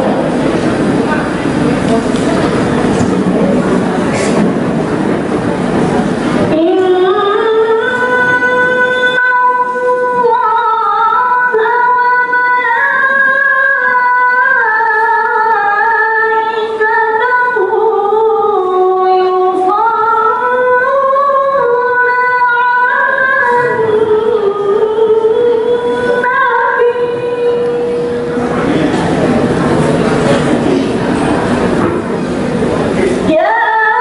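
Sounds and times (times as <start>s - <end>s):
woman singing into microphone: 6.4s - 28.4s, 33.2s - 34.0s.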